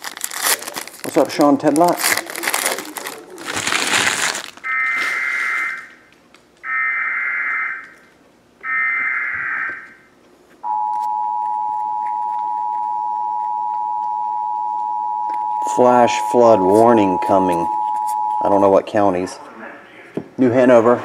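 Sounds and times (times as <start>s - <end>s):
foil wrappers crinkling: 0.0s - 6.6s
two-tone attention signal: 10.6s - 18.8s.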